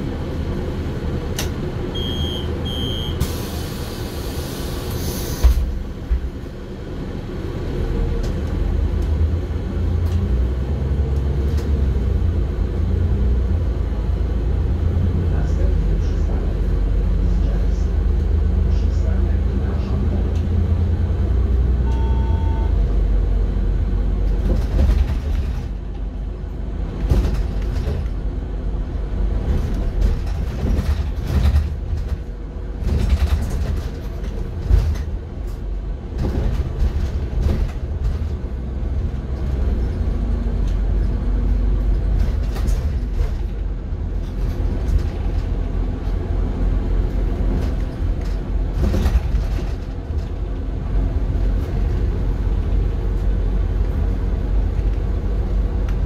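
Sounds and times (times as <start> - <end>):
bus engine and road rumble: 0.0 - 56.0
short beep: 1.9 - 3.3, 21.8 - 22.8
rattles and knocks: 24.3 - 26.0, 27.0 - 28.2, 29.4 - 38.6, 42.0 - 45.7, 47.3 - 50.6.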